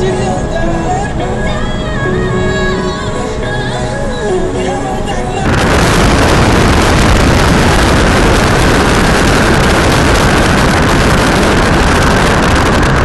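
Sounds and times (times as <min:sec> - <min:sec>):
car road noise: 0:00.0 - 0:13.0
wind buffeting microphone: 0:05.4 - 0:13.0
wind rush: 0:05.4 - 0:13.0.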